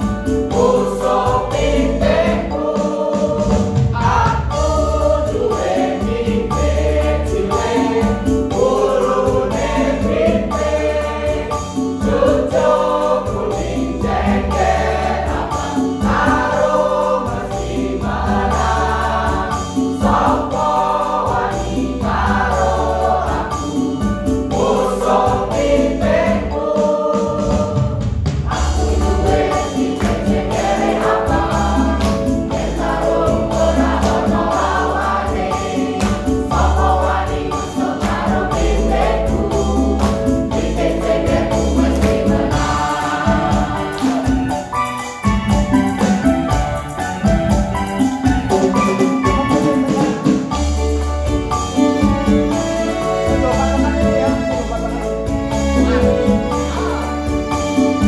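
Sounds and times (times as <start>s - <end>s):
mixed choir singing: 0.0s - 58.0s
deep bass accompaniment: 27.3s - 44.6s, 45.3s - 58.0s.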